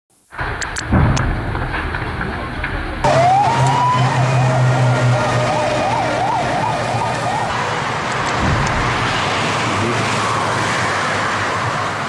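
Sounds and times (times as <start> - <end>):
street noise: 0.3 - 12.0
vehicle engines rumbling: 0.4 - 12.0
emergency vehicle siren: 3.0 - 11.8.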